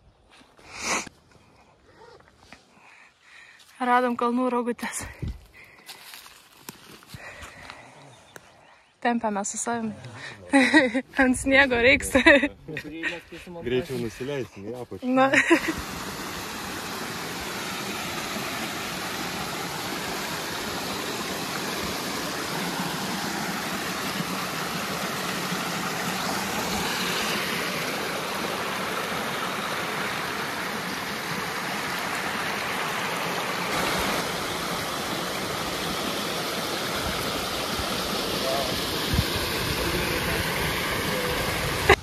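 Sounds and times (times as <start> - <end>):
waterfall rushing: 15.3 - 42.0.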